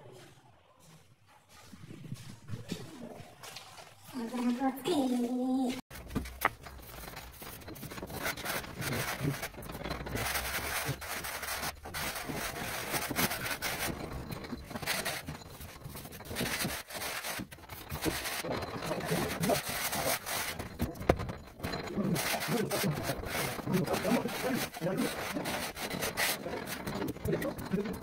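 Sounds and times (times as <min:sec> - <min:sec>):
trowel scraping screed: 0:05.9 - 0:28.0.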